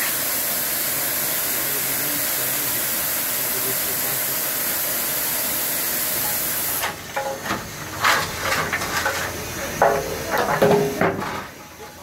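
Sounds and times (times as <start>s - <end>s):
steam locomotive hissing steam: 0.0s - 12.0s
voices: 0.9s - 4.8s, 8.5s - 12.0s
metal clanks: 6.8s - 11.6s.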